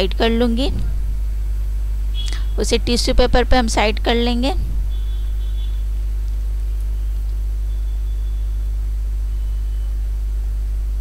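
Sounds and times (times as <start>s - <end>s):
faint high whine: 0.0s - 11.0s
low electrical hum: 0.0s - 11.0s.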